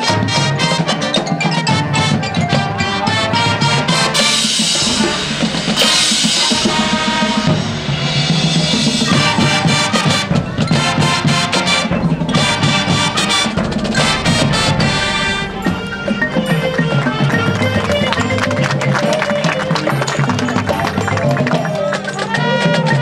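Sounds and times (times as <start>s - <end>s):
marching drums: 0.0s - 23.0s
saxophones and brass: 0.0s - 23.0s
cymbal crash ringing: 3.7s - 19.5s.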